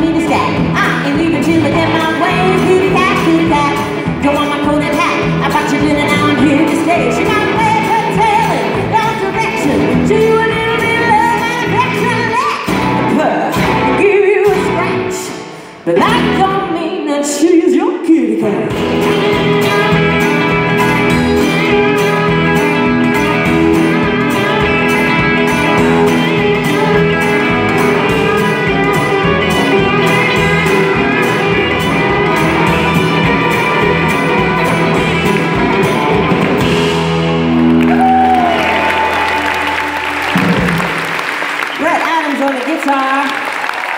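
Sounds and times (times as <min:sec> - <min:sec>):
person singing: 0:00.0 - 0:18.9
bass: 0:00.0 - 0:43.9
drums: 0:00.0 - 0:43.9
electric and acoustic guitars: 0:00.0 - 0:43.9.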